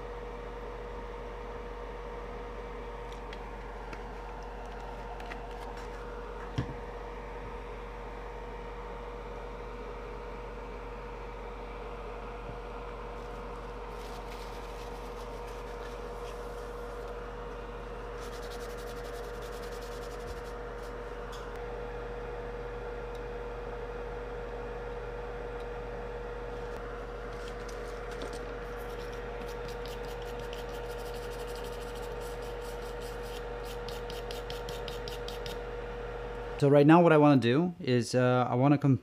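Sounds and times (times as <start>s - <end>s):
steady electrical hum: 0.0s - 39.0s
scratchy rubbing on circuit board: 18.2s - 20.6s, 28.7s - 35.6s.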